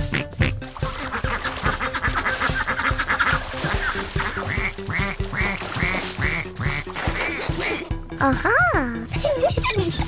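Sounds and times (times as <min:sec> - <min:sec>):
ducks quacking: 0:00.0 - 0:08.0
light children's music: 0:00.0 - 0:10.0.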